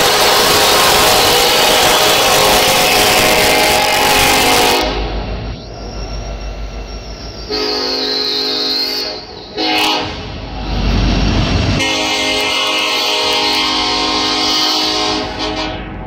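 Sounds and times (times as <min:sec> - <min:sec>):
locomotive air horn blasts: 0:00.0 - 0:05.2, 0:07.5 - 0:10.5, 0:11.8 - 0:16.0
rumble of passing train: 0:00.0 - 0:16.0.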